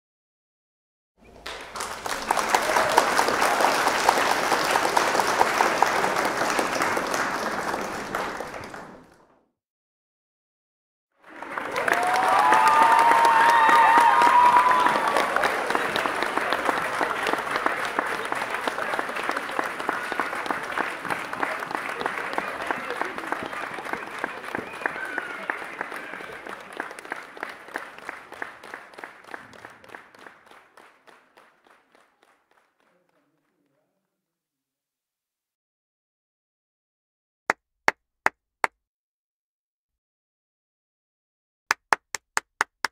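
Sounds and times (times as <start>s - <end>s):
crowd applause: 1.2s - 9.3s, 11.2s - 33.8s.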